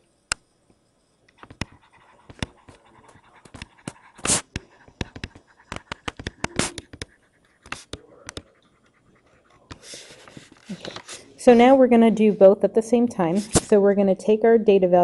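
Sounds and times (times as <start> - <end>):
stylus scratching on a tablet: 1.4 - 12.6.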